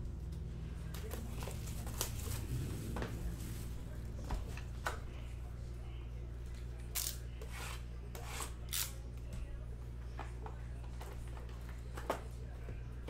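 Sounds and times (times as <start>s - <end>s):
low electrical hum: 0.0s - 13.0s
wrapping rustling: 0.9s - 4.2s
wrapping tearing: 1.1s - 3.7s.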